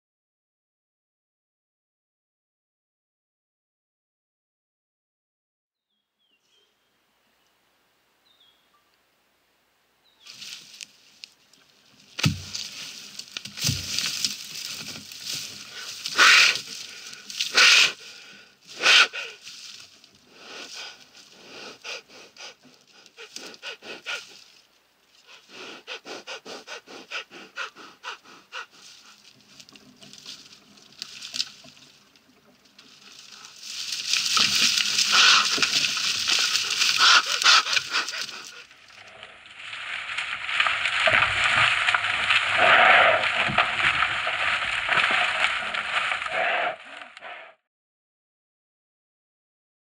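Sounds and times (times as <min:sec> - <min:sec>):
dry branches crashing and crackling: 0:10.3 - 0:17.6, 0:29.3 - 0:42.6, 0:43.2 - 0:46.3
rhino breathing hard: 0:12.2 - 0:24.6, 0:25.2 - 0:29.6, 0:33.0 - 0:47.6.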